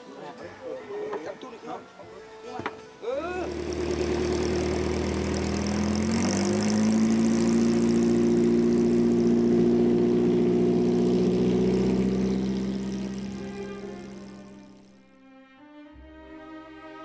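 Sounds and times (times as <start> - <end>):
boat engine running: 3.3 - 15.0.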